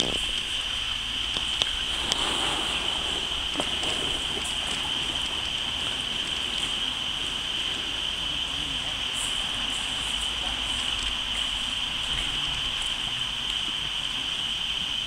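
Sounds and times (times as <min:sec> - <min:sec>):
lake water lapping on pebbles: 0:00.0 - 0:14.8
steady high-pitched hiss: 0:00.0 - 0:15.0.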